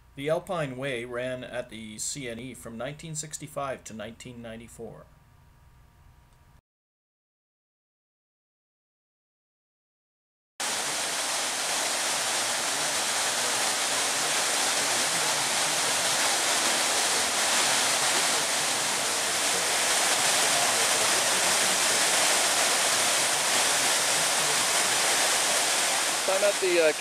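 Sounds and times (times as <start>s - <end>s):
fountain water splashing: 10.6s - 27.0s.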